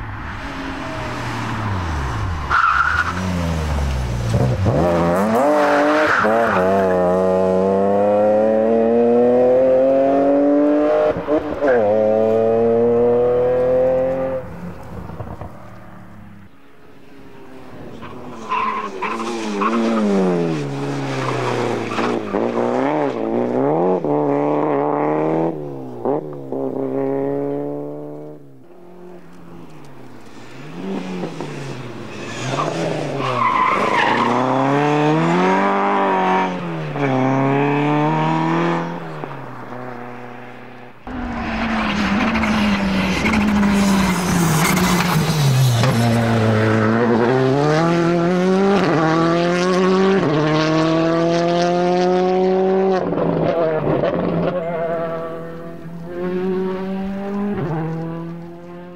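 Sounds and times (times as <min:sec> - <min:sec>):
rally car engines at full throttle: 0:00.0 - 0:58.9.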